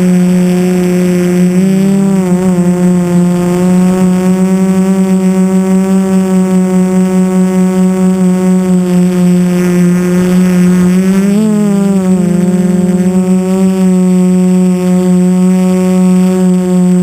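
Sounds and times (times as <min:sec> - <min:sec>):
quadcopter propellers humming: 0:00.0 - 0:17.0.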